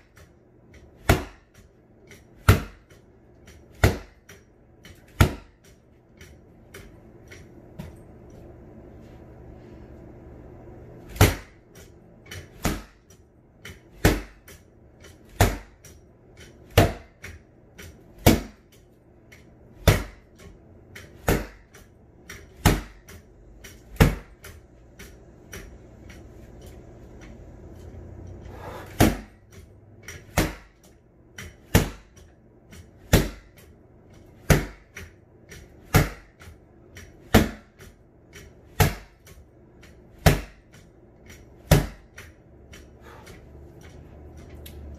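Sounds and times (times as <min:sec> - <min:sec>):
sword whacking punching bag: 0:01.0 - 0:01.7, 0:02.4 - 0:03.0, 0:03.7 - 0:05.7, 0:11.0 - 0:11.7, 0:12.5 - 0:13.1, 0:13.9 - 0:14.6, 0:15.3 - 0:15.9, 0:16.7 - 0:17.2, 0:18.2 - 0:18.7, 0:19.8 - 0:20.3, 0:21.1 - 0:21.8, 0:22.5 - 0:24.5, 0:28.6 - 0:29.4, 0:30.2 - 0:30.9, 0:31.5 - 0:32.2, 0:33.0 - 0:33.6, 0:34.4 - 0:35.0, 0:35.7 - 0:36.4, 0:37.2 - 0:37.9, 0:38.7 - 0:39.3, 0:40.2 - 0:40.8, 0:41.6 - 0:42.3.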